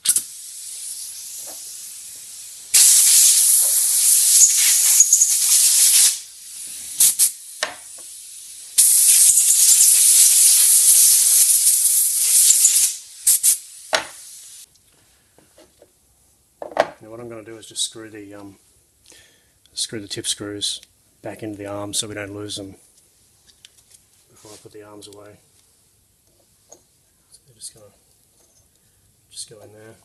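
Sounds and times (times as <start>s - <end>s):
compressed air blow gun hissing: 0.0s - 14.7s
short air puffs: 0.0s - 14.7s.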